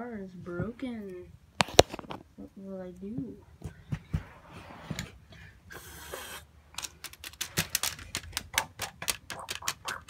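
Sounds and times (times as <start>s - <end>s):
plastic bricks clicking and clattering: 6.7s - 10.0s
plastic pieces rustling: 6.8s - 10.0s.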